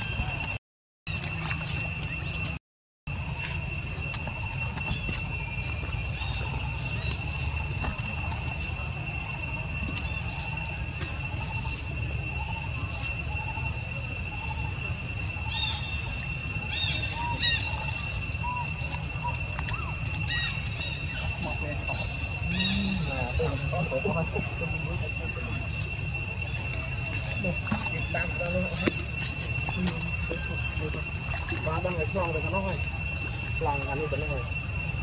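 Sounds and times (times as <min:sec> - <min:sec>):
insect drone: 0:00.0 - 0:35.0.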